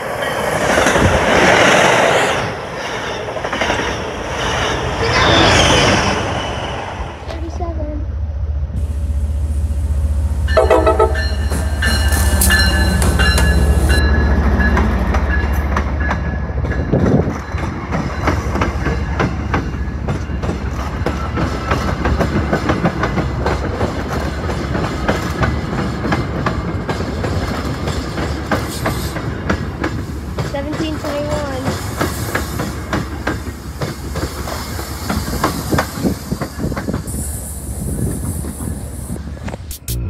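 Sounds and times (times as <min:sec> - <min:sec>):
locomotive engine drone: 0:01.0 - 0:16.6
train wheels clacking over rail joints: 0:10.5 - 0:37.1
locomotive horn: 0:10.6 - 0:11.8.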